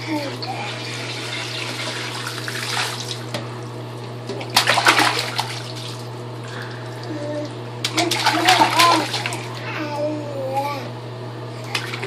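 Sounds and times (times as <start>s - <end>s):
water pouring into bath: 0.4s - 3.3s
baby splashing water: 4.3s - 9.8s, 11.6s - 12.0s.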